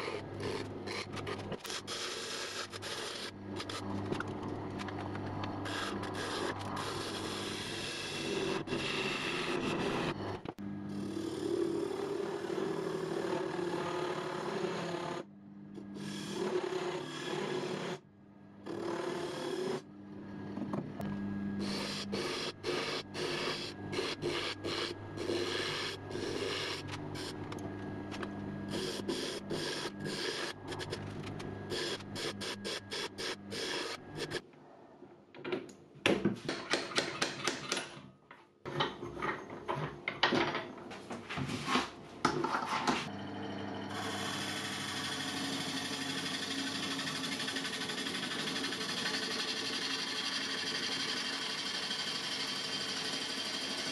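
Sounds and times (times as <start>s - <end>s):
lathe motor hum: 0.0s - 18.0s, 18.6s - 34.4s, 43.0s - 53.9s
gouge cutting wood on lathe: 5.6s - 10.2s, 11.0s - 15.2s, 15.9s - 18.0s, 21.6s - 27.4s, 28.7s - 34.4s, 43.5s - 53.9s.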